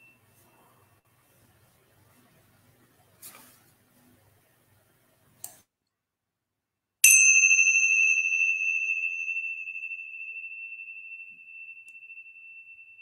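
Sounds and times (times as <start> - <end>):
hand cymbals ringing: 7.0 - 13.0.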